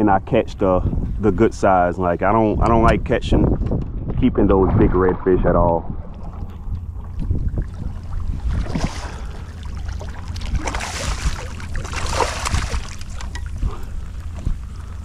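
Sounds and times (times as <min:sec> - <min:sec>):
wind buffeting microphone: 0:00.0 - 0:15.0
water splashing: 0:04.4 - 0:15.0.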